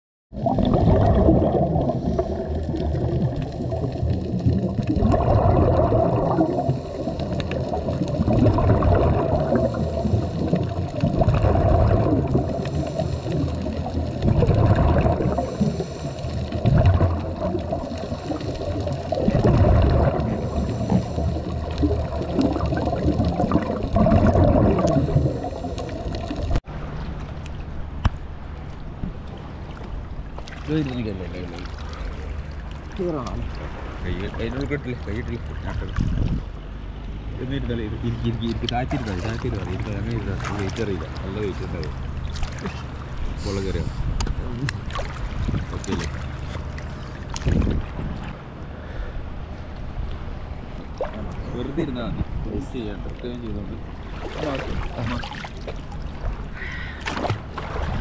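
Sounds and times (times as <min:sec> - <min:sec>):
bubbles gurgling underwater: 0:00.3 - 0:26.7, 0:37.4 - 0:43.5, 0:44.2 - 0:48.4, 0:50.7 - 0:58.0
water at the surface: 0:00.3 - 0:58.0
diver breathing through regulator: 0:12.4 - 0:13.8, 0:15.2 - 0:16.6, 0:20.2 - 0:21.7, 0:42.8 - 0:44.2.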